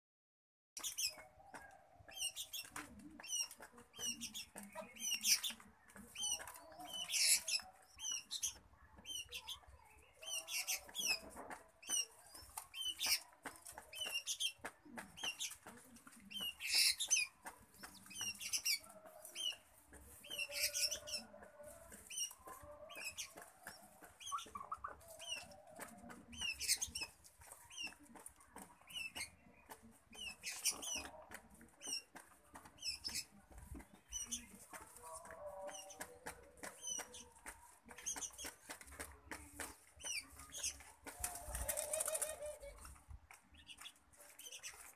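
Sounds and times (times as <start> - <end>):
wing fluttering and rustling: 36.6 - 44.9.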